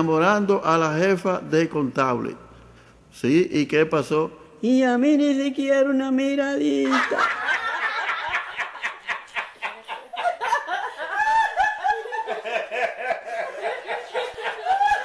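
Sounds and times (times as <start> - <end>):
person laughing in bursts: 6.8 - 15.0.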